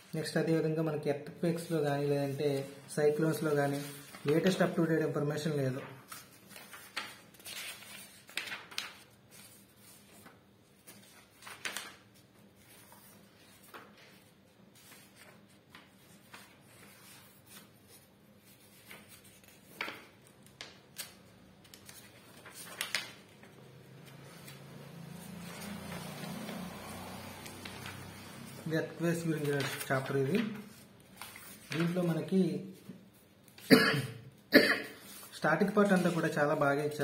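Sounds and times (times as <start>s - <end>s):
book pages turning: 3.4s - 4.7s, 5.9s - 32.1s.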